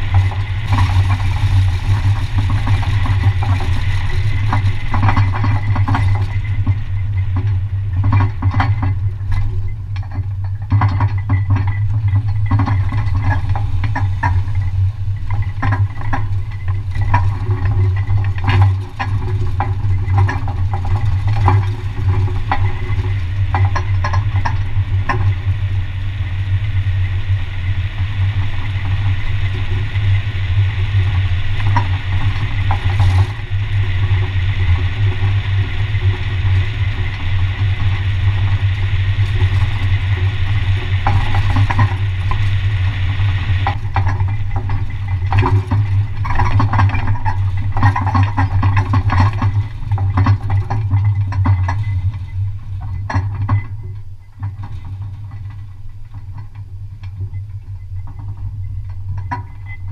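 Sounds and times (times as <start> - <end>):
trailer clanking and rattling: 0.0 - 25.7
low road rumble: 0.0 - 59.9.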